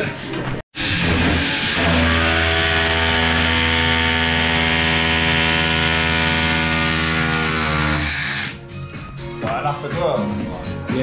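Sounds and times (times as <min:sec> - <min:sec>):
rotary hammer drilling into wall: 0:01.0 - 0:08.6.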